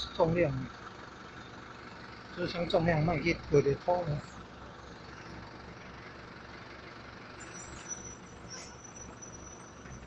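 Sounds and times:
diesel engine rumbling: 0:00.0 - 0:10.0.

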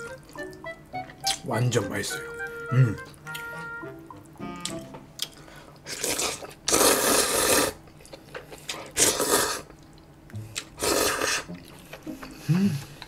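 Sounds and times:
loud noodle slurping: 0:05.9 - 0:07.8, 0:08.6 - 0:09.7, 0:10.6 - 0:11.8.

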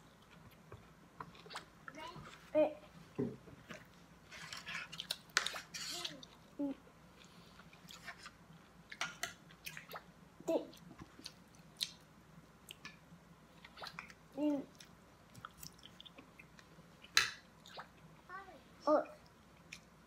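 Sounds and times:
chewing and mouth noises: 0:13.6 - 0:18.1.

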